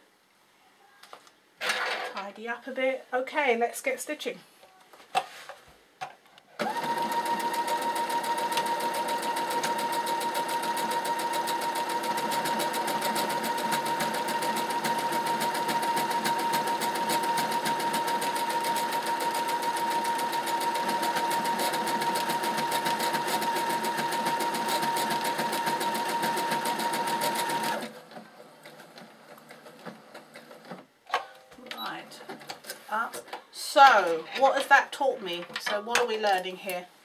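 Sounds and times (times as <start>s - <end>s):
sewing machine stitching: 6.6s - 30.8s.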